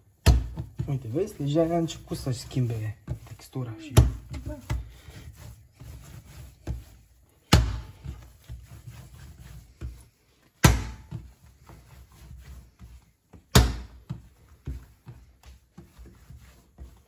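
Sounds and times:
dough handling sounds: 0.0 - 17.0
dough slapped on a table: 0.2 - 0.8, 7.5 - 8.0, 10.6 - 11.2, 13.4 - 14.2.

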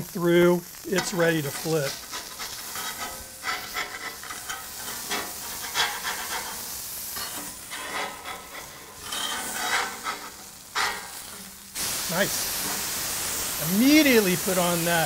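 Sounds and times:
meat sizzling on griddle: 0.0 - 15.0
metal spatula scraping steel: 1.0 - 11.7.

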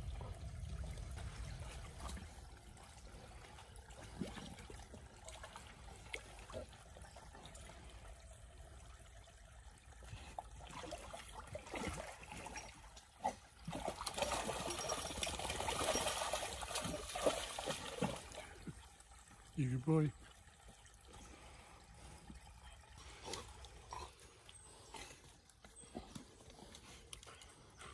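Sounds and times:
dog splashing through water: 10.6 - 18.6.

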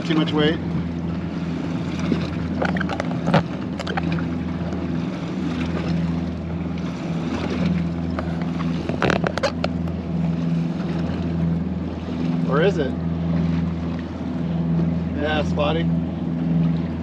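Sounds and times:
outboard motor idling: 0.0 - 17.0
water noise: 0.0 - 17.0
wind: 0.0 - 17.0
short clatters: 8.1 - 10.0.

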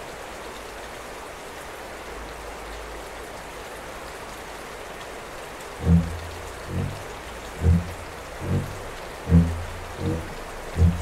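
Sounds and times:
hiss of water: 5.6 - 11.0
loud low boom: 5.8 - 11.0.

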